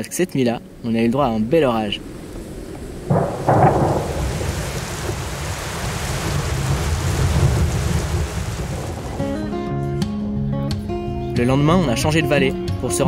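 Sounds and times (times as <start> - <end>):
steady rain: 0.0 - 9.7
thunder rumbling: 0.5 - 10.1.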